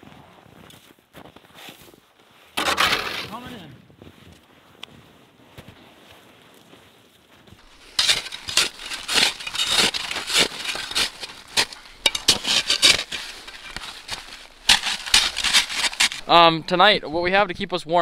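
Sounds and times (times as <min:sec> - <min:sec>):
snow crunching: 0:02.6 - 0:03.6, 0:07.6 - 0:17.0.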